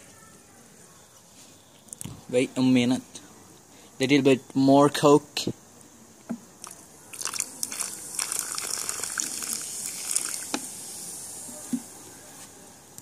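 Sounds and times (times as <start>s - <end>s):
cola pouring and fizzing: 6.6s - 11.9s.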